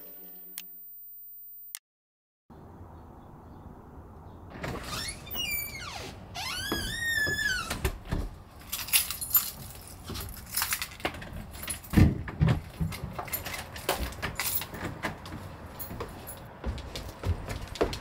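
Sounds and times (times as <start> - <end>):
keys jangling: 8.6 - 12.0, 12.9 - 14.8.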